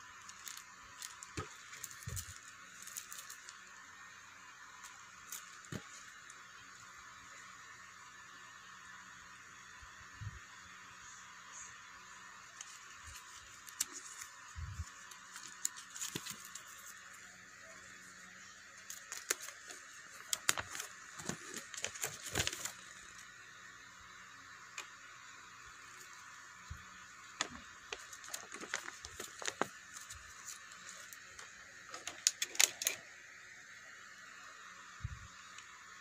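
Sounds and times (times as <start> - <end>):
steady hiss: 0.0 - 36.0
paper crinkling and crackling: 0.1 - 3.7, 12.5 - 17.8, 18.8 - 23.2, 27.4 - 33.0.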